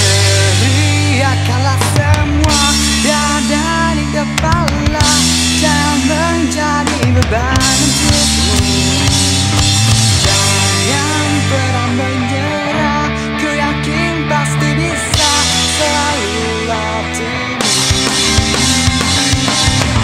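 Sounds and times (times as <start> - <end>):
bass drum beat: 0.0 - 12.1, 15.1 - 16.8, 17.6 - 20.0
bending guitar lead lines: 0.0 - 20.0
indie rock band playing: 0.0 - 20.0
loud bass line: 0.0 - 20.0.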